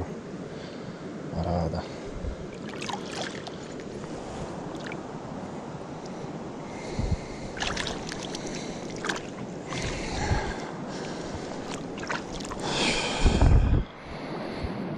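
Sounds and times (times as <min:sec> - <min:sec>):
small splashes and drips: 0:02.5 - 0:03.9, 0:04.7 - 0:05.0, 0:07.6 - 0:10.2, 0:10.9 - 0:12.7
hands sloshing in water: 0:02.5 - 0:05.0, 0:07.5 - 0:12.9.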